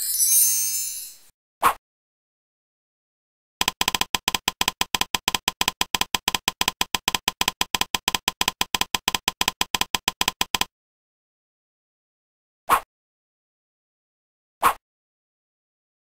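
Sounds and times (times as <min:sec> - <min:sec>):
fast typing-style clicks: 0:03.6 - 0:10.7.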